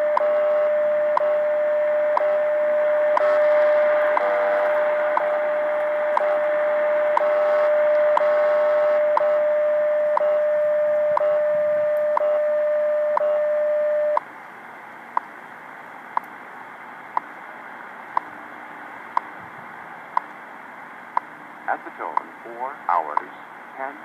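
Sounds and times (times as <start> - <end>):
steady radio tone: 0.0 - 14.2, 21.7 - 24.0
radio static hiss: 0.0 - 24.0.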